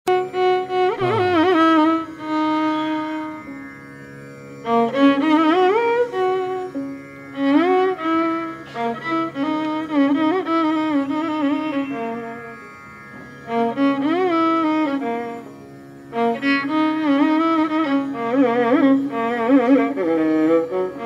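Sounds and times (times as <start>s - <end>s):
instrumental melody with ornaments: 0.1s - 21.0s
steady drone: 0.9s - 3.6s.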